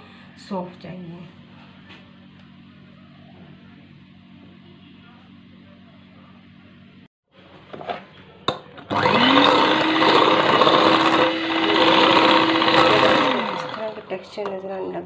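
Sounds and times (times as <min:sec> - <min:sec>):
electric hand mixer whirring: 0:08.8 - 0:14.8.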